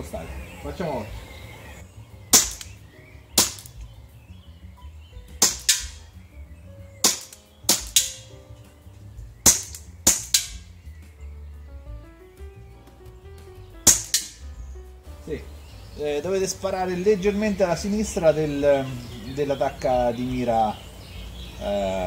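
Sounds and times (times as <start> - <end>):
airsoft pistol pops: 2.3 - 2.8, 3.4 - 4.0, 5.3 - 6.1, 7.0 - 8.4, 9.4 - 10.7, 13.8 - 14.5.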